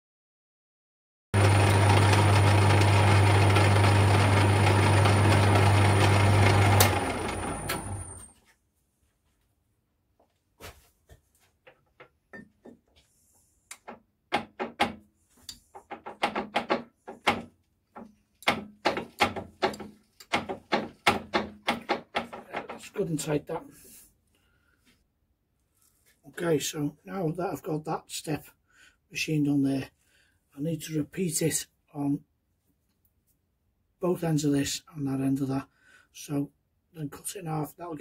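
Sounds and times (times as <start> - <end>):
metal lathe running: 1.4 - 8.2
lathe spinning down: 1.4 - 8.3
metal knocks and clicks: 13.7 - 15.0, 15.7 - 23.0.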